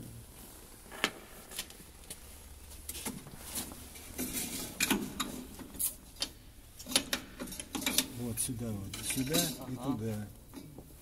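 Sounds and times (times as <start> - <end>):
metal parts clicking and clinking: 4.0 - 8.1, 8.9 - 9.8.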